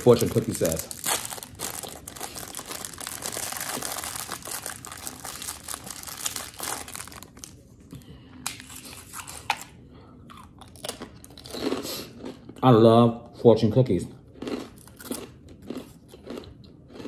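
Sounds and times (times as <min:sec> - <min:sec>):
plastic wrapper crinkling: 0:00.0 - 0:07.6.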